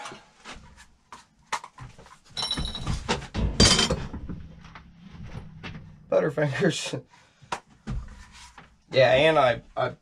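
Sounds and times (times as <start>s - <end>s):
metal clatter and clang: 2.4s - 4.5s.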